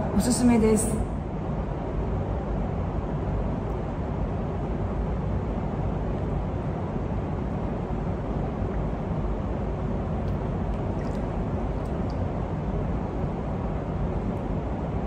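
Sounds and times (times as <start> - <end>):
low rumbling pool hall ambience: 0.0 - 15.0
water stirred by wading: 10.2 - 12.4.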